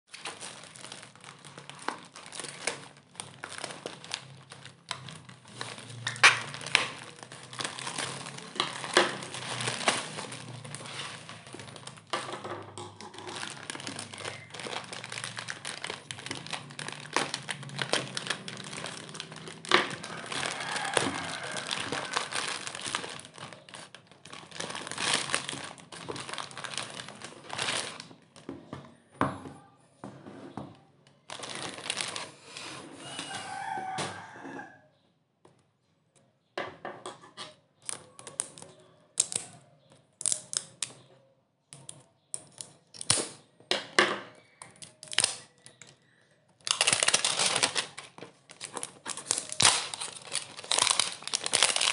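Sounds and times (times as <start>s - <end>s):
scissors cutting plastic: 0.1s - 28.1s, 37.5s - 39.6s, 40.2s - 41.1s, 41.8s - 43.4s, 44.6s - 51.9s
plastic packaging crinkling: 0.1s - 28.6s, 31.2s - 34.4s, 44.6s - 51.9s.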